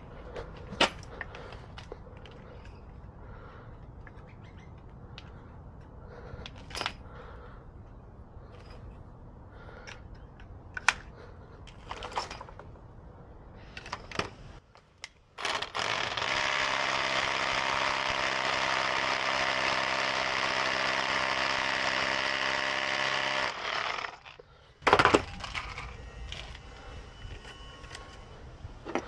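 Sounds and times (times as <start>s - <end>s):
cordless drill running: 15.4s - 24.3s.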